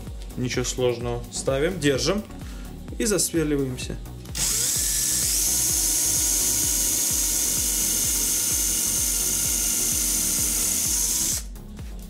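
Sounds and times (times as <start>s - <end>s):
drill boring into wood: 4.3s - 11.5s.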